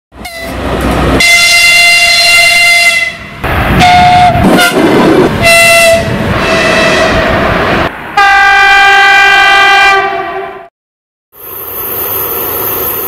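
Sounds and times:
locomotive horn blasts: 0.2s - 0.6s, 1.2s - 7.3s, 8.2s - 10.7s
rolling train noise: 0.2s - 10.7s, 11.4s - 13.0s.

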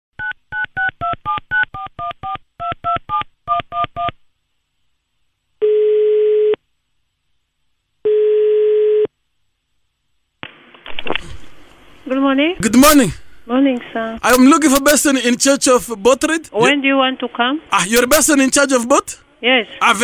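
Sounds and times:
telephone ringing tone: 5.6s - 6.6s, 8.0s - 9.1s.

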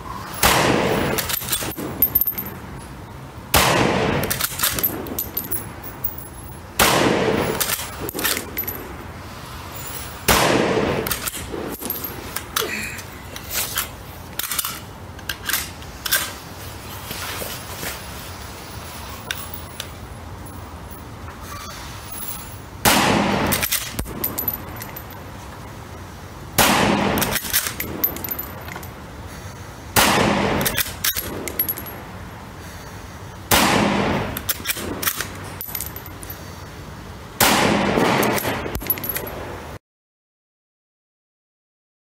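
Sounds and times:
rifle shots ringing: 6.8s - 8.8s, 10.3s - 12.2s, 37.4s - 39.4s.

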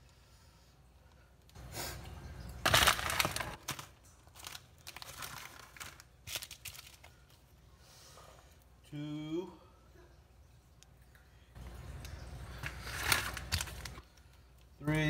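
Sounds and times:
plastic packets crinkling and tearing: 2.5s - 7.4s, 12.5s - 14.4s.

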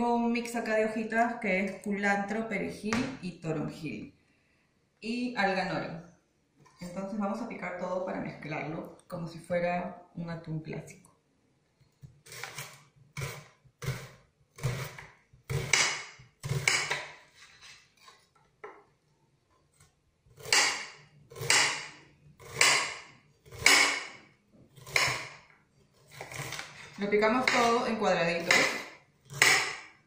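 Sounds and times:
knife cutting onion on board: 12.3s - 17.2s, 20.3s - 24.2s, 24.8s - 25.5s, 26.1s - 30.0s.

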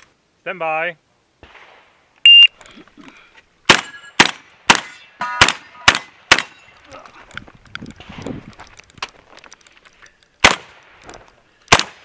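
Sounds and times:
shotgun shots: 3.7s - 6.6s, 10.4s - 11.0s, 11.7s - 12.0s.

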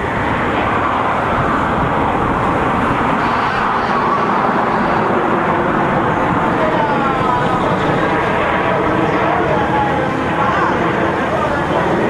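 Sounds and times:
jets roaring overhead: 0.0s - 12.0s.

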